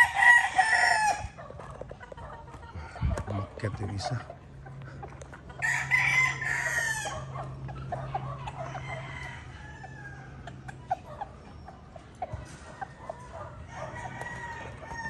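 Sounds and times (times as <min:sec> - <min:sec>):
rooster crowing: 0:00.0 - 0:01.4, 0:05.6 - 0:07.4, 0:08.2 - 0:10.6, 0:13.3 - 0:15.0
chicken clucking: 0:00.0 - 0:15.0.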